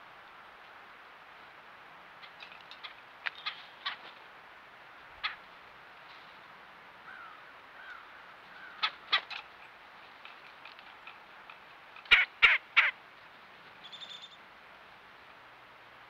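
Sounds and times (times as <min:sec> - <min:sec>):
faint short bird calls: 0:07.0 - 0:09.3, 0:13.8 - 0:14.4
harsh caw-like bird calls: 0:07.0 - 0:09.3.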